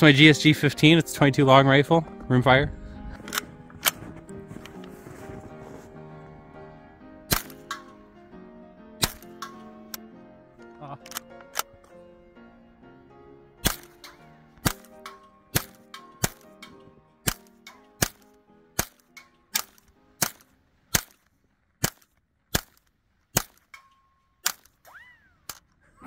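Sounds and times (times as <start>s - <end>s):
rifle shots: 7.3s - 8.0s, 9.0s - 9.6s, 13.6s - 21.2s, 21.8s - 23.8s.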